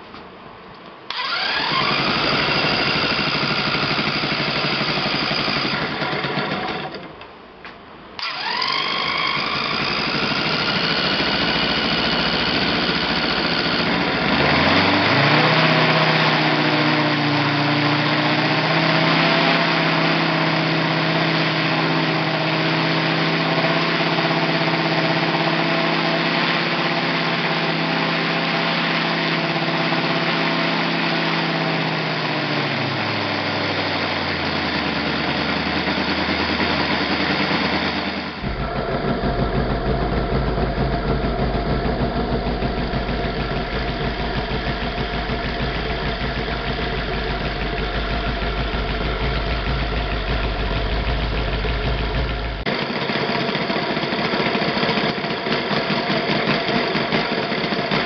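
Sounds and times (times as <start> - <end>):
radial model engine running: 1.1 - 6.9, 8.2 - 14.9, 38.4 - 58.0.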